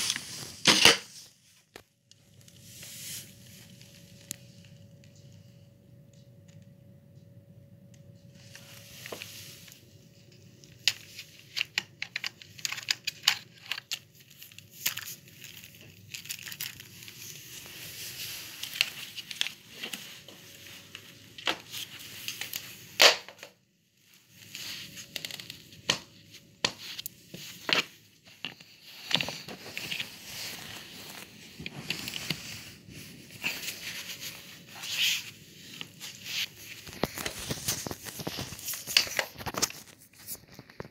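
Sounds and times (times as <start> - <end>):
faint steady hum: 0.0 - 40.8
plastic parts clicking and knocking: 10.8 - 14.0.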